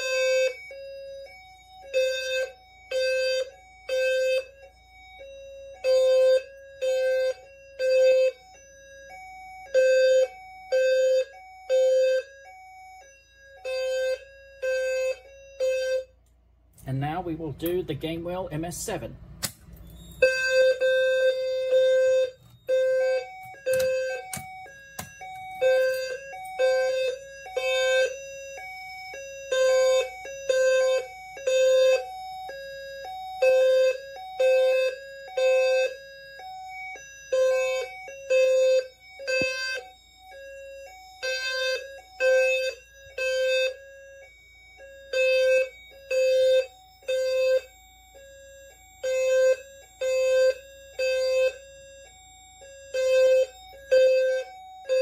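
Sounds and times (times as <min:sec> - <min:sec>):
low fire alarm horn beeping: 0:00.0 - 0:19.2, 0:19.8 - 0:55.0
clicks: 0:23.4 - 0:26.6.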